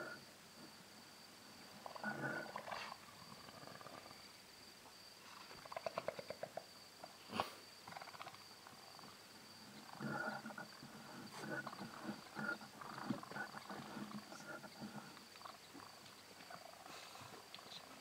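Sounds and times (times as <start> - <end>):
crickets trilling: 0.0 - 18.0
wild animal calls: 1.8 - 4.2, 5.3 - 6.6, 9.6 - 18.0.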